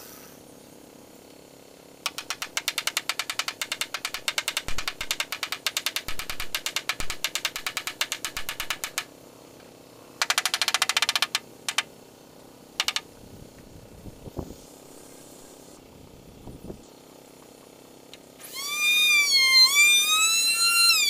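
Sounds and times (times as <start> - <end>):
rapid sharp clicks: 2.0 - 9.1, 10.2 - 11.9, 12.8 - 13.1
hammer knocking on wooden frame: 2.1 - 9.0.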